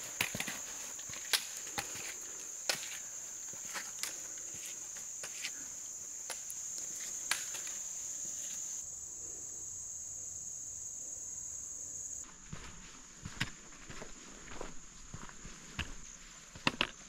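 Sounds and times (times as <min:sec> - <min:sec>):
footsteps and poles on stone: 0:00.0 - 0:08.7, 0:12.2 - 0:17.0
footsteps on dirt trail: 0:00.0 - 0:08.8, 0:12.2 - 0:17.0
insects droning: 0:00.0 - 0:17.0.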